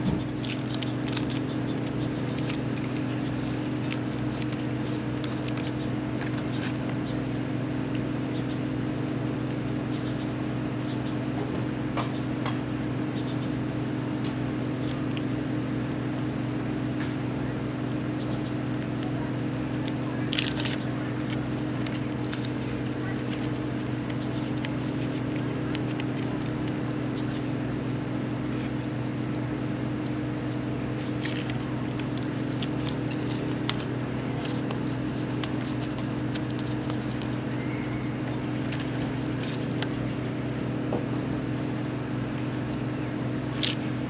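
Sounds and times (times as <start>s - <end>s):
foil tape crinkling and clicking: 0.0s - 8.5s, 14.1s - 16.3s, 17.8s - 40.1s, 43.4s - 44.0s
machine hum: 0.0s - 44.0s.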